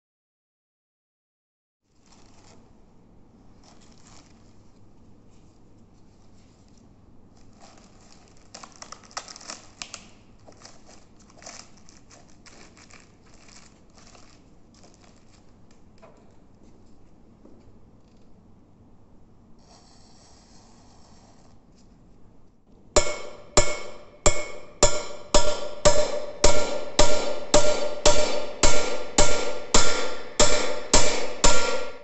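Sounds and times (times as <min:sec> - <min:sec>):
plastic film crinkling: 0:01.9 - 0:02.7, 0:03.6 - 0:04.9, 0:06.0 - 0:15.8.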